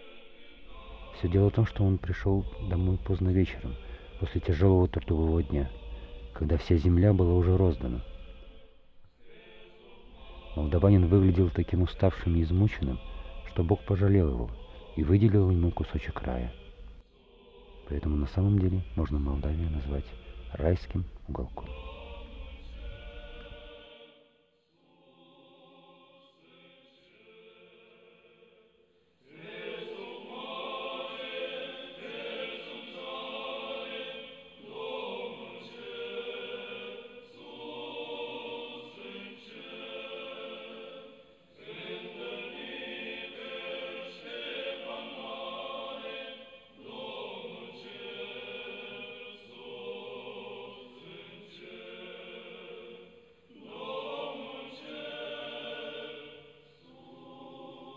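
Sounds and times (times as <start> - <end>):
choir singing: 0.0 - 57.9.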